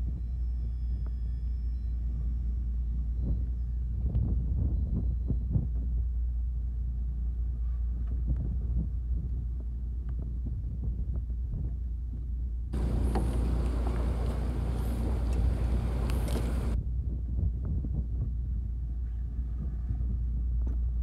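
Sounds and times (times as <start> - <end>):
boat engine rumble: 0.0 - 17.3
rush of wind and water: 12.8 - 18.1.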